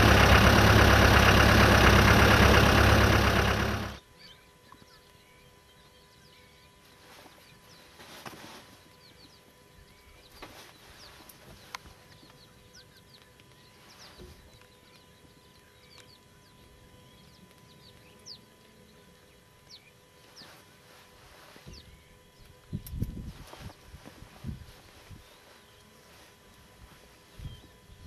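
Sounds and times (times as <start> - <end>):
birds chirping: 0.0 - 8.0, 8.8 - 22.9
faint steady hum: 0.0 - 28.0.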